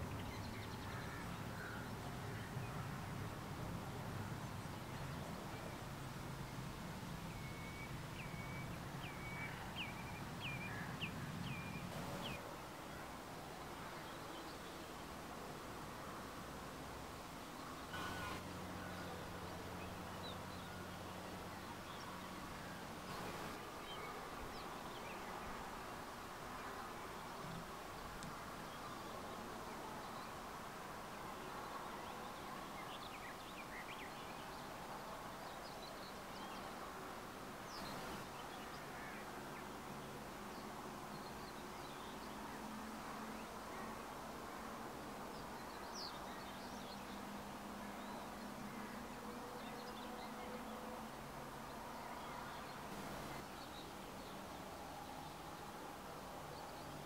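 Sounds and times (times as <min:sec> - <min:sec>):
faint bird chirps: 0:17.9 - 0:19.2.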